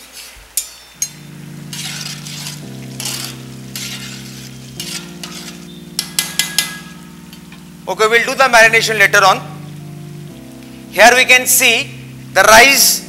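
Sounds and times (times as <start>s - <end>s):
metal spatula scraping pan: 0.0s - 7.0s
light sizzle: 0.0s - 13.0s
spatula clinking against pan: 0.6s - 7.0s.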